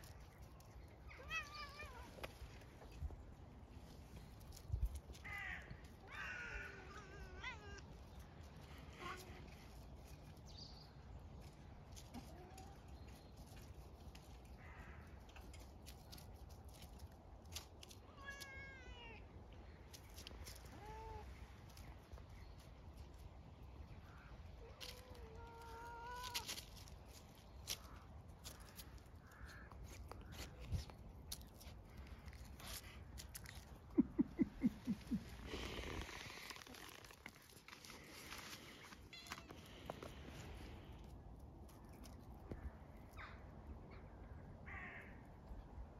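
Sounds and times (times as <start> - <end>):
animals scuffling on gravel and leaves: 0.0 - 34.0, 35.0 - 43.3
faint rustling: 19.7 - 42.7.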